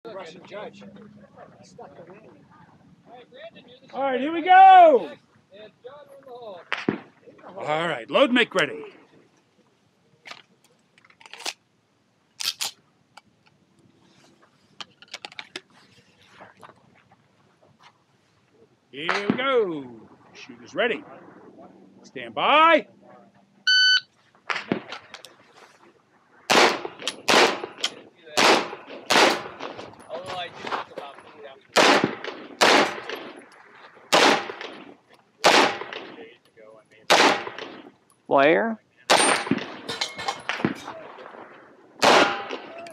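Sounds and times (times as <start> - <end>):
pistol shots: 26.5 - 29.9, 31.8 - 33.5, 34.1 - 36.2, 37.1 - 37.9, 39.1 - 42.7.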